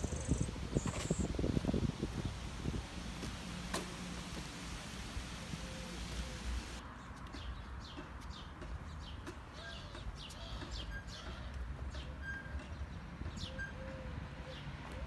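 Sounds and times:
small birds chirping: 0.0s - 2.6s.

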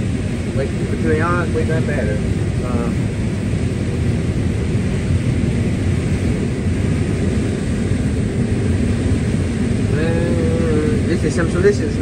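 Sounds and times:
combine harvester droning: 0.0s - 12.0s.

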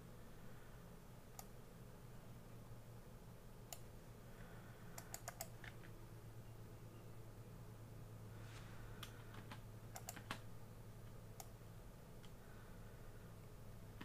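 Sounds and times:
faint low hum: 0.0s - 14.0s
keyboard and mouse clicks: 5.0s - 6.0s, 9.0s - 10.5s.

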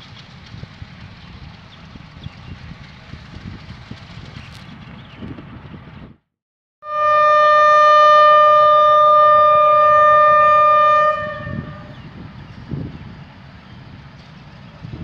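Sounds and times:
low outdoor rumble: 0.0s - 6.3s, 6.9s - 15.0s
locomotive air horn: 6.8s - 12.0s.

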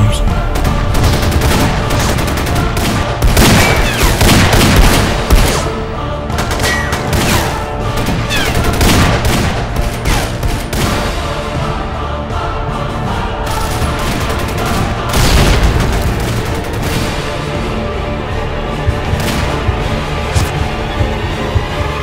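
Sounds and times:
trailer music: 0.0s - 22.0s
gunfire bursts: 0.6s - 5.8s, 6.4s - 11.2s, 13.5s - 17.4s.

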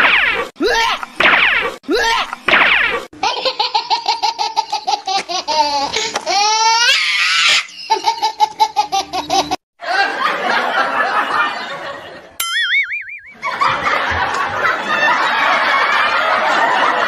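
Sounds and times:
high-pitched cackling laugh: 3.2s - 11.6s.

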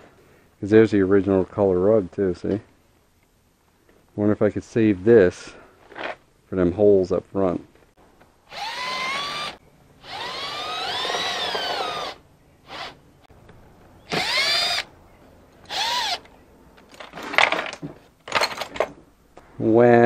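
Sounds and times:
drill motor whining: 8.5s - 13.0s, 14.1s - 14.9s, 15.7s - 16.3s.

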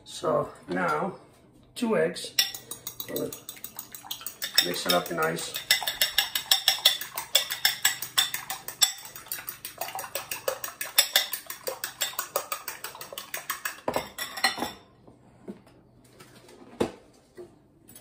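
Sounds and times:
utensil clinking against bowl: 2.3s - 14.8s.

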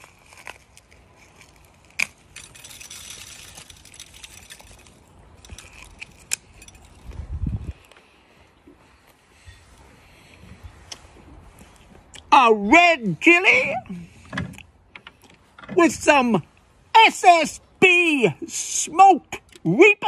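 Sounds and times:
crunching and chewing chilli: 0.0s - 8.0s.

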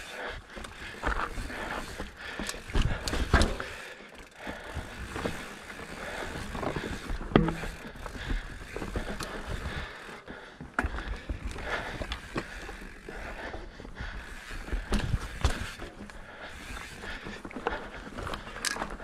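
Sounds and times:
bike tyres on dirt: 0.0s - 19.0s
bike clunks and rattles: 0.2s - 19.0s.

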